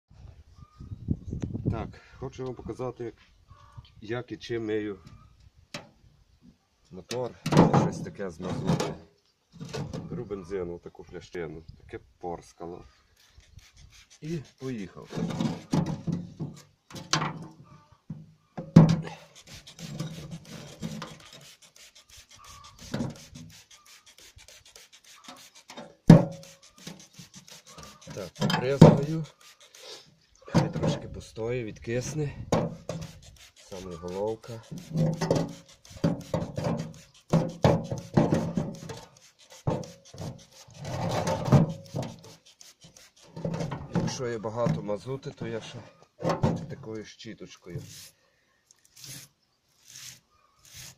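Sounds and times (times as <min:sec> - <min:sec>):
metal liner rubbing on table: 0:19.2 - 0:30.0, 0:32.7 - 0:43.7, 0:47.8 - 0:48.2, 0:49.0 - 0:50.9
trigger sprayer hissing spray: 0:19.2 - 0:30.1, 0:32.8 - 0:40.8.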